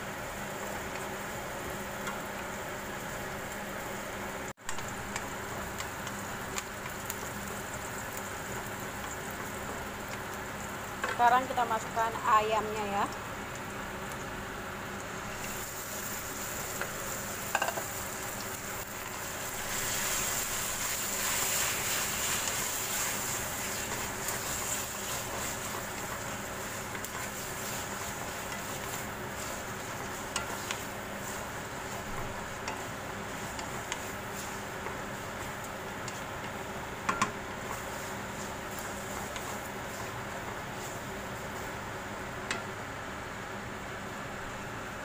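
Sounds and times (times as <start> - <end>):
chicken sizzling in oil: 0.0 - 43.4
spatula knocking against pan: 36.4 - 37.5.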